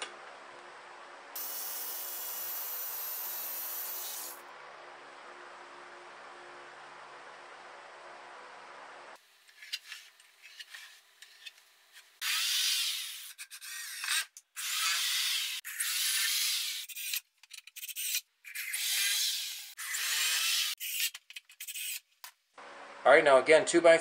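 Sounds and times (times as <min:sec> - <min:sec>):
power drill boring into wood: 0:12.2 - 0:13.9, 0:14.6 - 0:16.8.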